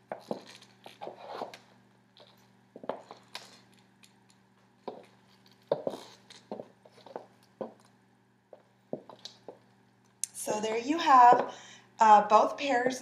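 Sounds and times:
heels clicking on hardwood floor: 0.0 - 3.8, 4.8 - 7.9, 8.5 - 9.7, 11.2 - 11.6
faint low hum: 0.0 - 13.0.

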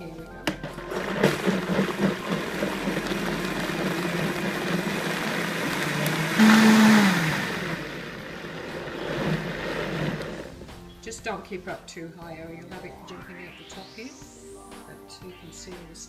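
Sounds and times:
blender motor running: 0.7 - 10.6.

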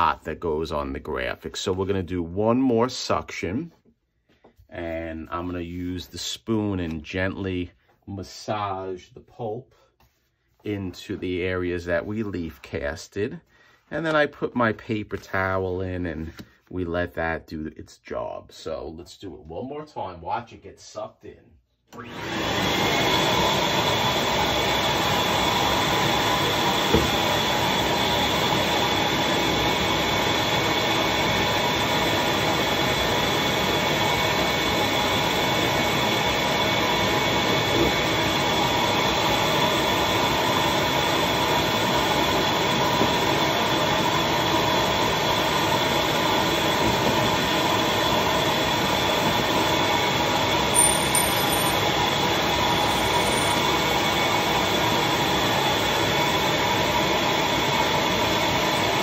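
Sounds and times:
vacuum motor whining: 22.0 - 30.3.

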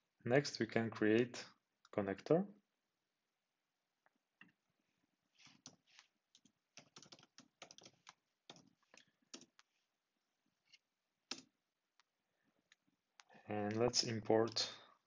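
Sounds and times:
faint keyboard typing: 5.4 - 9.8, 10.7 - 11.5, 12.7 - 14.8.

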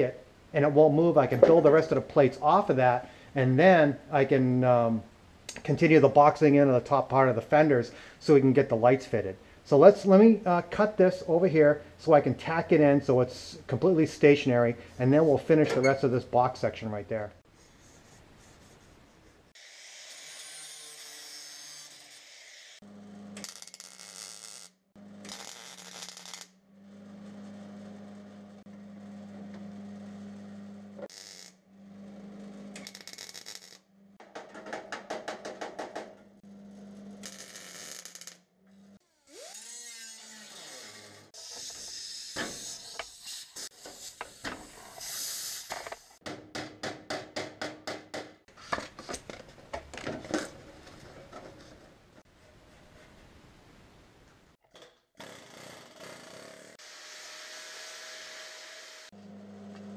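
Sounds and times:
power tool on sheet metal: 19.6 - 28.4, 39.1 - 43.1, 55.2 - 59.9.

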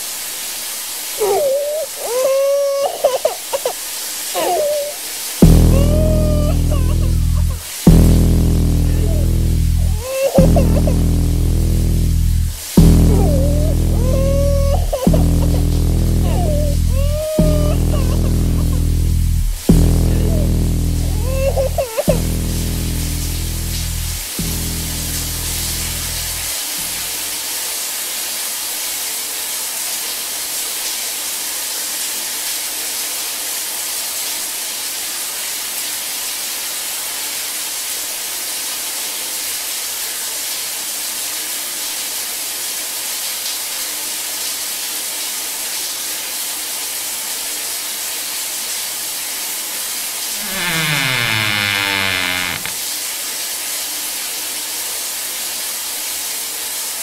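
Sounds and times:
low musical drone: 5.4 - 27.1
upward sweeping pitched sound: 5.4 - 27.1.

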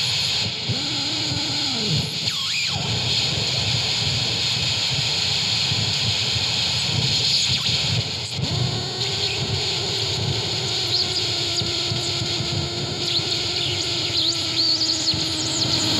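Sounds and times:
harsh noise music static: 0.0 - 15.9
steady low hum: 14.0 - 15.9.

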